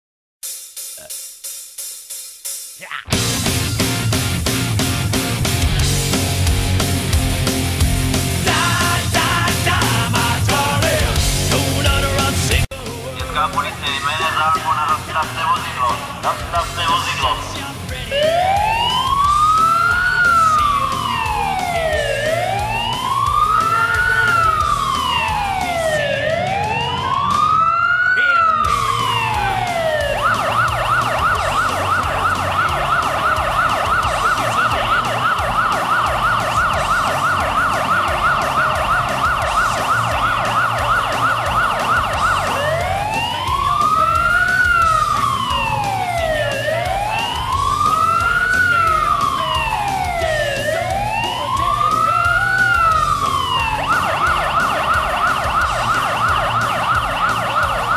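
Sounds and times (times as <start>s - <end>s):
police car siren wailing and yelping: 13.6s - 57.9s.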